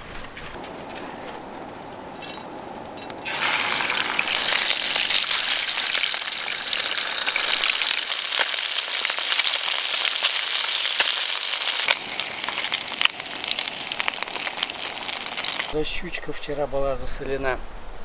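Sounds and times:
fish sizzling in hot oil: 2.2 - 15.8.

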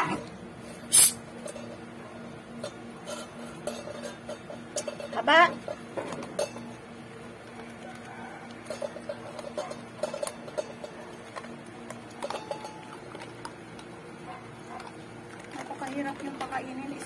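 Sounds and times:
dogs crunching dry kibble: 1.3 - 17.0
kibble clicking in metal bowl: 7.4 - 17.0.

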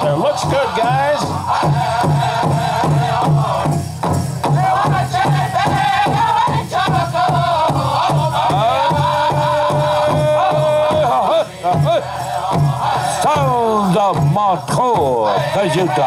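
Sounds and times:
big drum steady beat: 0.0 - 16.0
high-pitched voices singing together: 4.5 - 16.0.

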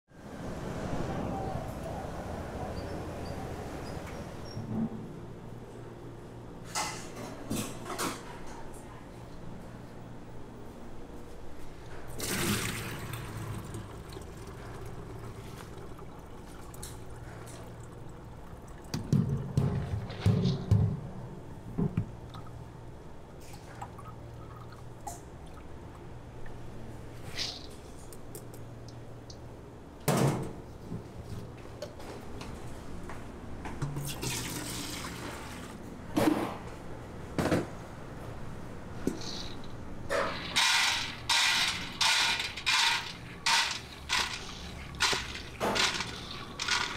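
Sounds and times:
water pouring into steel sink: 12.2 - 19.0, 34.0 - 35.7, 40.3 - 46.9
water trickling and dripping: 13.1 - 19.1.

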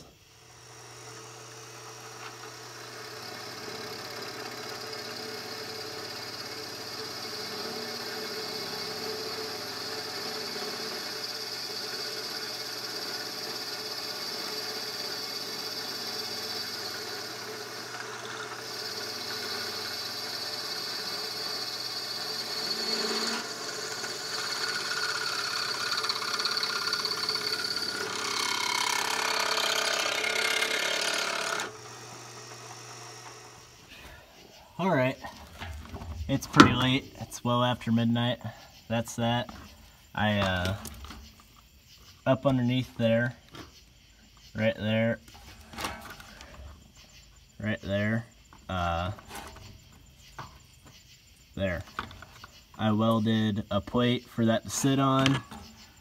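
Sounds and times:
drill press boring through steel: 0.0 - 34.0.

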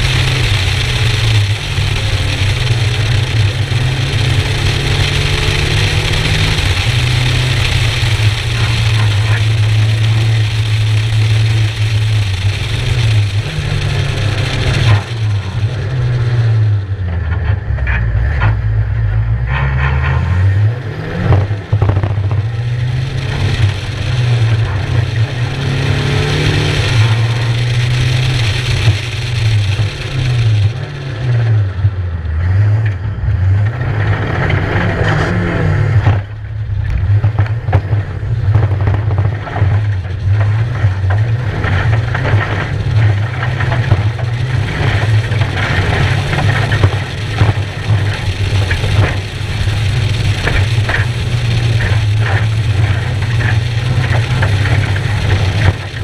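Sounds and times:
rally car engine running hard: 0.0 - 56.0.

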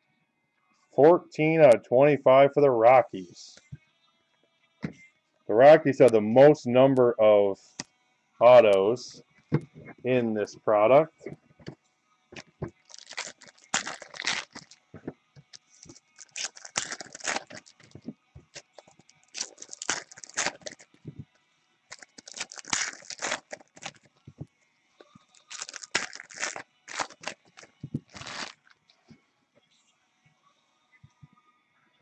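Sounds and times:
card wrappers tearing and crinkling: 12.7 - 14.9, 15.5 - 21.0, 21.9 - 24.1, 25.3 - 28.8.

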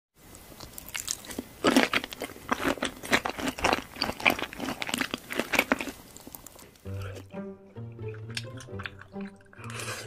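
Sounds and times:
crunchy bites and chewing: 0.3 - 7.2.

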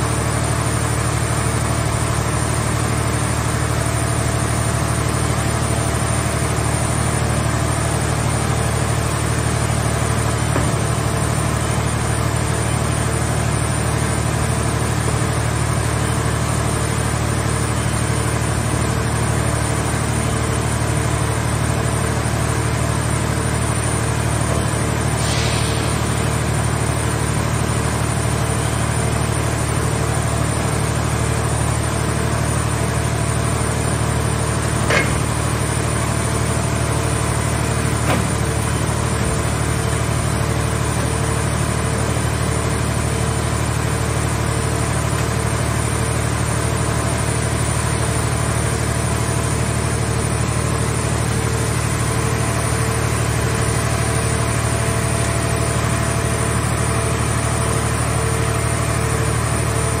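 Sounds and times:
hydraulic power unit droning: 0.0 - 60.0
metallic clanks of grapple: 34.8 - 35.4.

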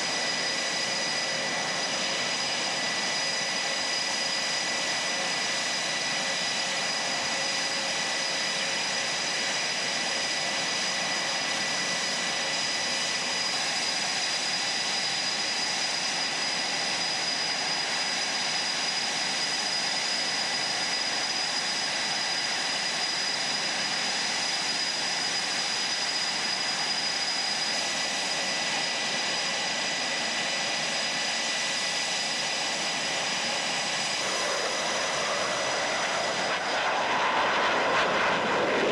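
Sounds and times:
jet engines running: 0.0 - 38.9.

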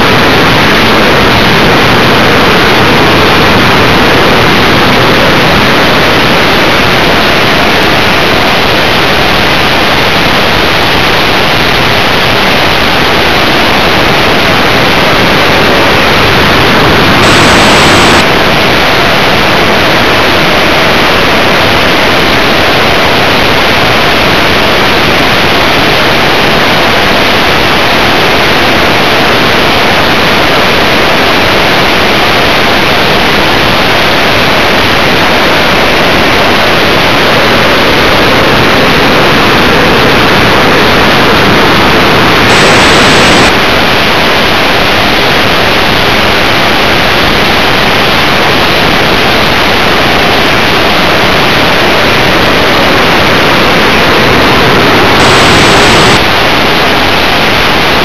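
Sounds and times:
rushing airflow: 0.0 - 24.6, 34.8 - 45.4, 48.7 - 57.3
model jet motor noise: 15.4 - 18.6, 40.7 - 43.6.

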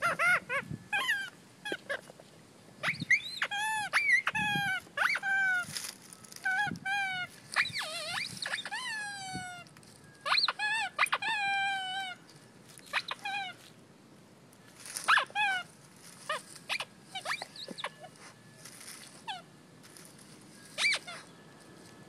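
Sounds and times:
dog whining: 0.0 - 2.2, 2.8 - 5.7, 6.4 - 12.2, 12.9 - 13.6, 15.0 - 15.7, 16.3 - 18.4, 19.2 - 19.5, 20.8 - 21.3.

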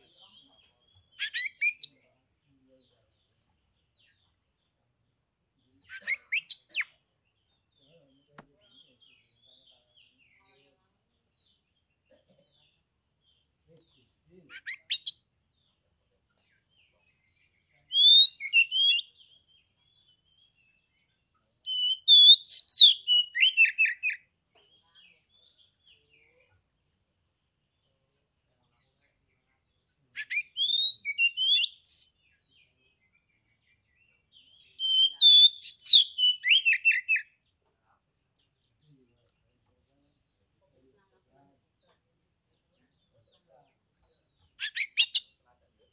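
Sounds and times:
bird whistling song: 1.1 - 2.0, 5.9 - 6.9, 17.9 - 19.2, 21.6 - 24.2, 30.2 - 32.2, 34.4 - 37.4, 44.6 - 45.3.

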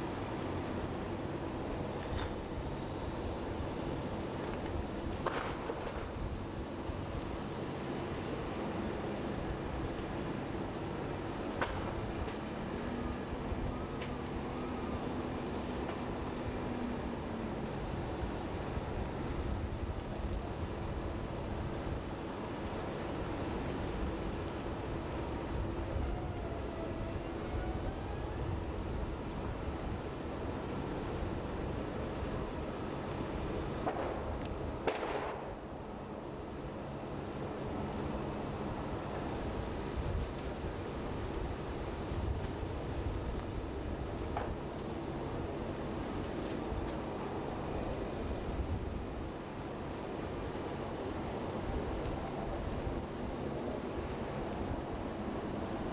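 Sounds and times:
fire engines running: 0.0 - 55.9
roar of large fire: 38.8 - 55.9.

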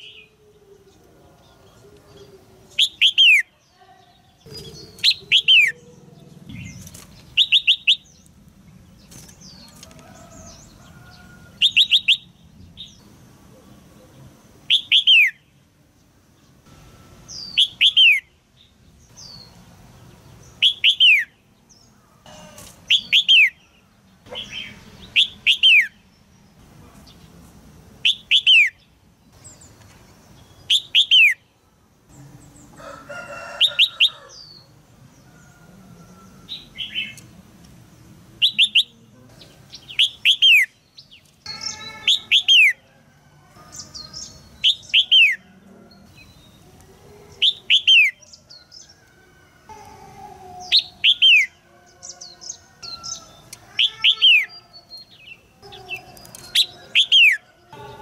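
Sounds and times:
bird giving sharp high calls: 41.5 - 42.8.

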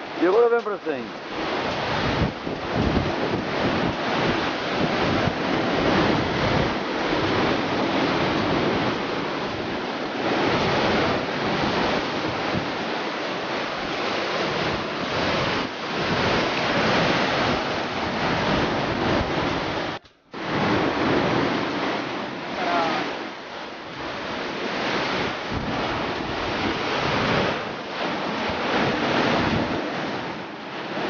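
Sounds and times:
surf breaking over rocks: 0.0 - 31.0
wind buffeting microphone: 0.0 - 31.0.

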